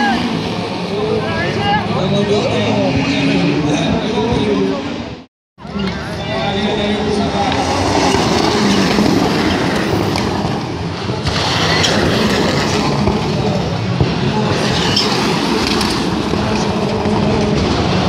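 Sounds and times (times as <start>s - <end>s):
race car engines revving: 0.0s - 18.0s.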